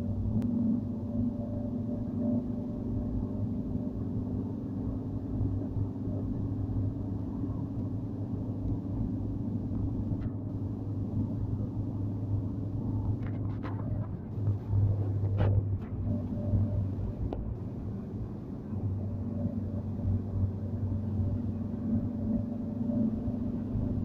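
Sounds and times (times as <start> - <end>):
car engine and road noise: 0.0 - 24.0.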